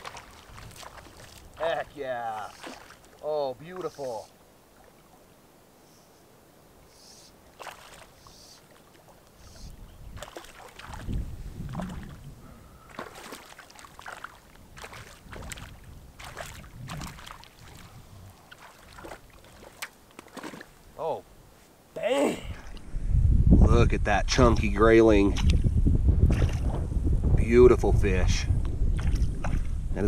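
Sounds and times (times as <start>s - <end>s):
water splashing: 0.0s - 5.3s, 7.2s - 21.1s
fish thrashing at water surface: 2.5s - 3.2s, 7.6s - 8.1s, 10.2s - 12.2s, 12.9s - 17.9s, 18.5s - 20.8s.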